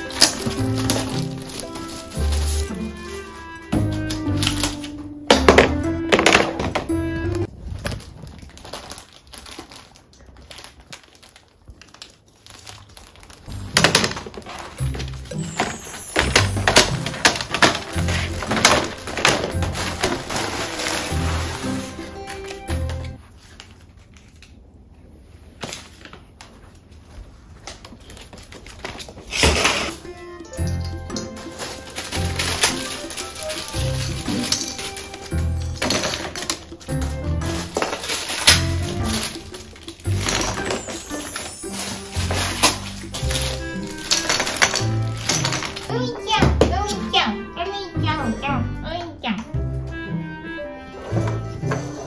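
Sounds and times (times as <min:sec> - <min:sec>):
plastic panels clattering: 0:00.0 - 0:09.0, 0:13.6 - 0:23.1, 0:30.8 - 0:45.9
plastic crinkling and rustling: 0:00.0 - 0:30.1, 0:30.7 - 0:46.2.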